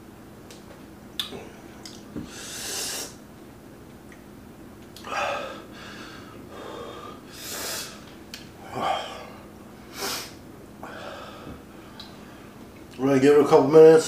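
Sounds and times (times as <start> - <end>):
man breathing hard and gasping: 2.2 - 3.2, 5.0 - 12.4.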